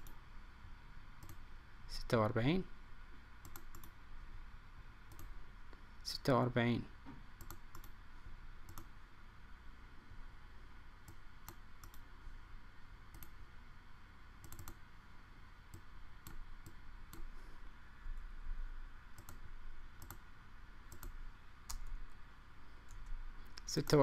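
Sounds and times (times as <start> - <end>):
computer mouse clicks: 0.0 - 0.2, 1.2 - 1.4, 3.4 - 4.0, 5.1 - 5.3, 7.4 - 8.0, 8.6 - 8.9, 11.0 - 12.1, 13.1 - 13.4, 14.4 - 14.8, 15.7 - 17.3, 19.2 - 19.4, 20.0 - 20.2, 20.9 - 22.0
faint background noise: 0.0 - 24.0.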